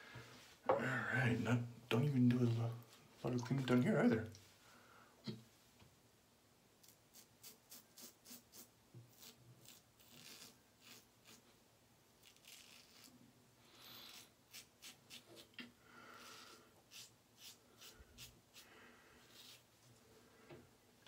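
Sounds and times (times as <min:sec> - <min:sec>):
razor scratching stubble: 0:06.8 - 0:11.4, 0:12.2 - 0:13.1, 0:13.8 - 0:15.6, 0:16.9 - 0:18.6, 0:19.3 - 0:19.6
soft razor hisses: 0:13.7 - 0:15.2, 0:16.2 - 0:19.6.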